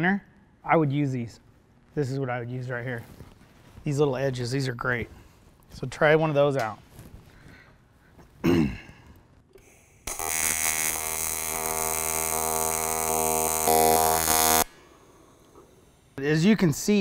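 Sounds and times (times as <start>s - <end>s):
welding arc buzzing: 9.5s - 16.2s.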